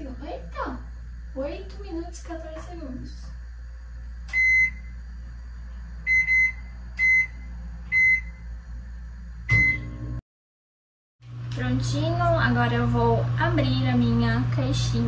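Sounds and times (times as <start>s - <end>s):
steady low hum: 0.0s - 10.2s
microwave keypad beeps: 4.3s - 4.9s, 6.1s - 8.4s, 9.5s - 10.0s.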